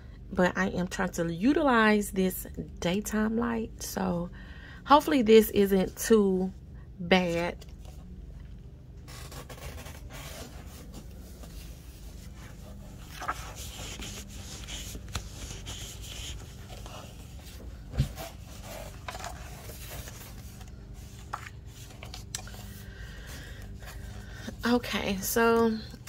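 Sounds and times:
faint low hum: 0:00.0 - 0:26.0
paper pages rustling: 0:09.0 - 0:24.3.

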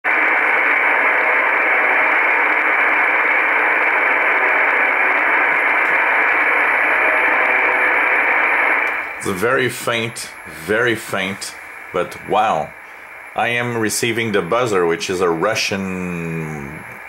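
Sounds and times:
faint radio buzzing: 0:00.1 - 0:17.0
radio static hiss: 0:00.1 - 0:17.0.

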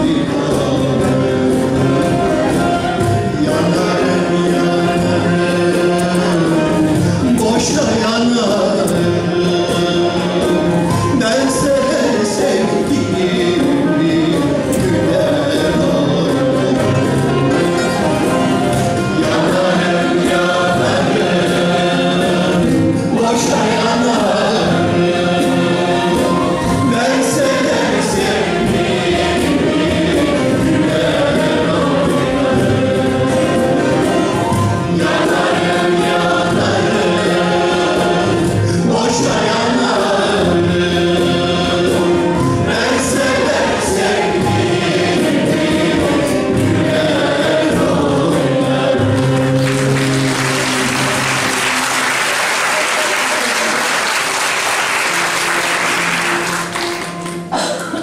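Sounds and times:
male soloist singing: 0:00.0 - 0:54.2
choir singing folk song: 0:00.0 - 0:58.0
lute accompaniment: 0:00.0 - 0:58.0
audience applause: 0:49.2 - 0:57.9.

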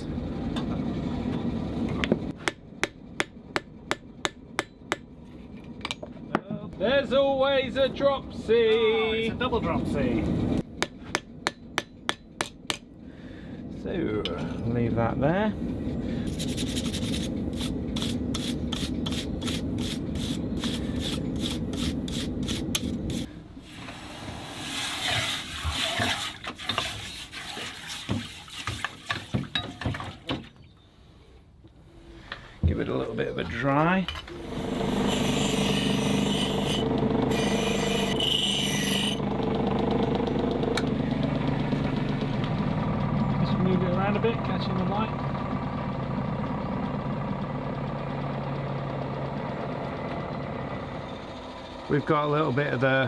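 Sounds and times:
hammer striking hot steel on anvil: 0:02.4 - 0:05.1, 0:10.8 - 0:12.9
brush scrubbing steel plate: 0:24.5 - 0:29.4.

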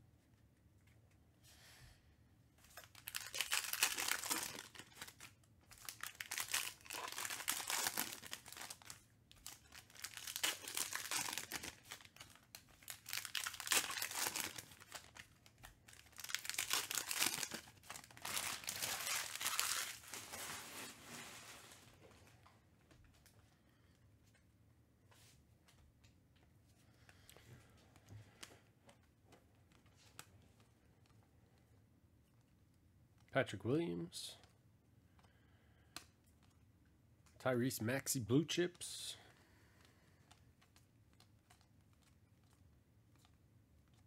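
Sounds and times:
trading cards rustling: 0:02.6 - 0:21.0.

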